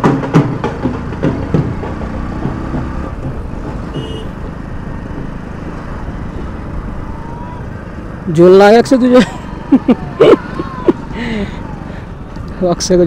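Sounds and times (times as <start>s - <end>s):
sharp knocks: 0.0s - 4.6s
motorcycle engine running: 0.0s - 8.3s
wind and road noise: 0.0s - 13.0s.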